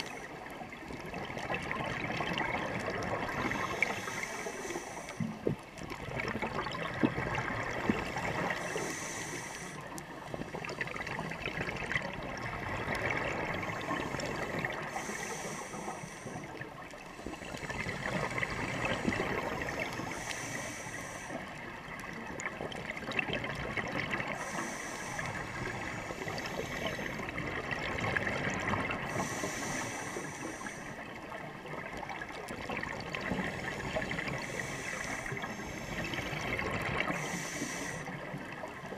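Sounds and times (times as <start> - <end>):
underwater bubbling exhaled air: 0.0 - 38.9
regulator hiss: 8.5 - 9.9, 13.8 - 16.6, 18.9 - 21.5, 24.4 - 27.2, 29.1 - 31.1, 33.6 - 38.2.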